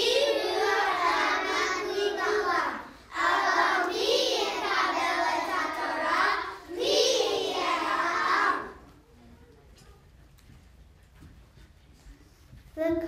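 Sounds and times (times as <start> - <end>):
young children singing: 0.0 - 9.0.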